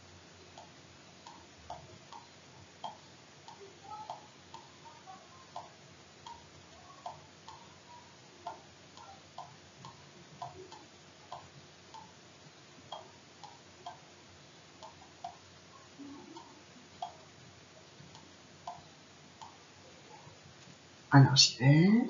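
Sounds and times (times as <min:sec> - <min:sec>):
computer mouse clicking: 0:18.0 - 0:19.6.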